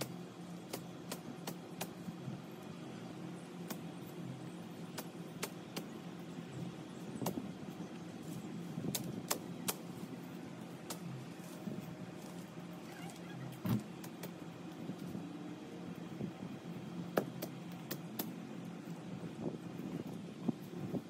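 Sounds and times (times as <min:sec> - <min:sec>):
steady low hum: 0:00.0 - 0:21.0
stems snapping: 0:08.9 - 0:09.8, 0:10.8 - 0:11.1, 0:13.8 - 0:14.4, 0:17.2 - 0:18.4.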